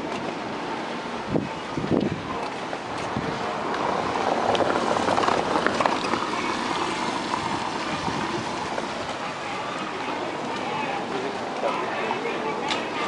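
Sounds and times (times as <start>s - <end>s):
car passing on wet cobbles: 2.9s - 9.6s.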